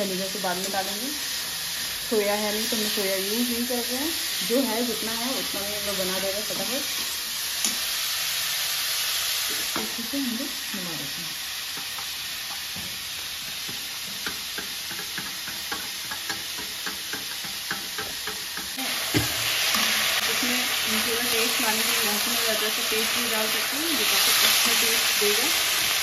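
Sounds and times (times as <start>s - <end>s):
vegetables sizzling in oil: 0.0s - 26.0s
ladle knocking on pan: 13.5s - 19.4s.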